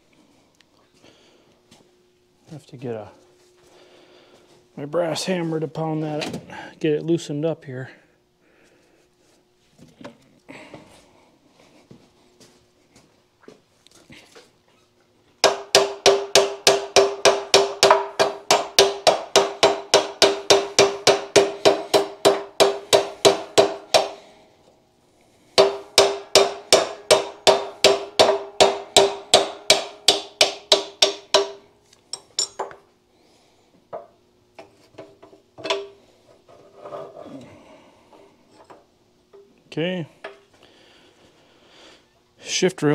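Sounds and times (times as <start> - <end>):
hammer striking metal rail: 15.4 - 24.3, 25.6 - 31.7.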